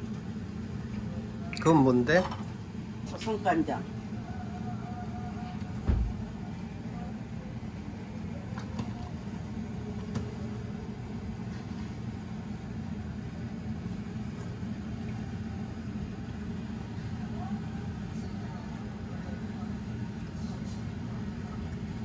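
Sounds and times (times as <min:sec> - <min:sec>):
gas stove rumble: 0:00.0 - 0:22.0.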